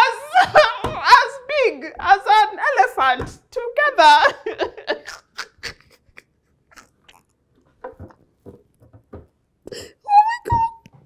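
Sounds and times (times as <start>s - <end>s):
women laughing: 0.0s - 1.1s, 4.0s - 6.3s
breathless gasps and wheezes: 9.6s - 10.1s.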